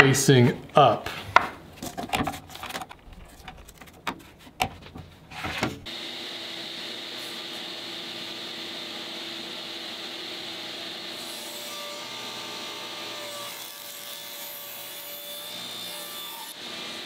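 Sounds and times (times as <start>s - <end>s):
table saw cutting wood: 5.4s - 17.0s.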